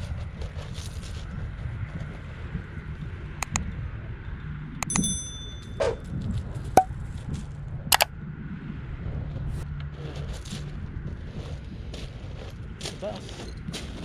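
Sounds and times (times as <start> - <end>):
low wind rumble: 0.0 - 12.8
sharp mouse clicks: 3.4 - 3.6
bell ding: 4.8 - 6.0.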